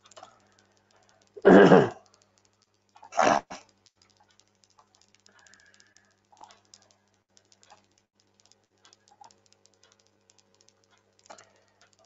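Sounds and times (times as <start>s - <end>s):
low electrical hum: 0.0s - 12.0s
mouse and keyboard clicks: 0.0s - 12.0s
person coughing: 1.4s - 2.0s.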